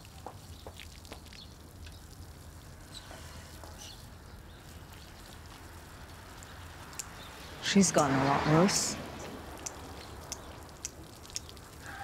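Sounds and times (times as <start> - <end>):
faint clicks: 9.5 - 11.9.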